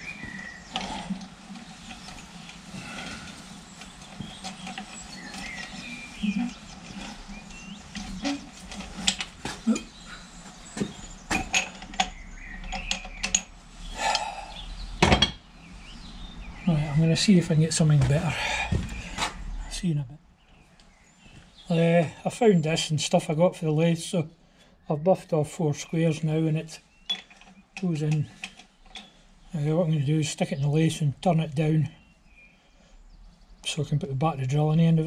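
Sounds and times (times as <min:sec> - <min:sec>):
metal tools clinking: 0:10.8 - 0:14.3, 0:27.0 - 0:29.1.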